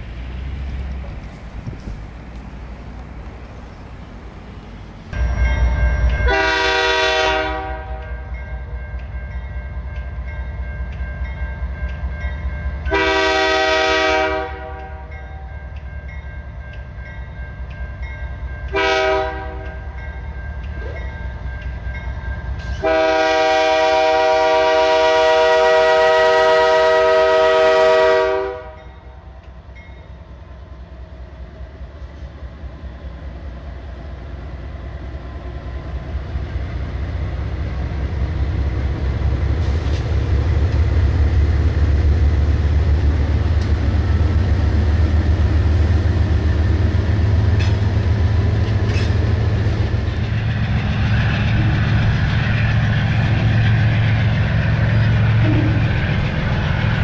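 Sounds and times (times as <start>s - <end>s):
rumble of passing train: 0.0s - 57.0s
crossing bell ringing: 5.1s - 13.3s, 14.5s - 23.0s, 28.7s - 30.3s
locomotive air horn blasts: 6.2s - 8.2s, 12.9s - 15.2s, 18.7s - 19.9s, 22.8s - 28.8s.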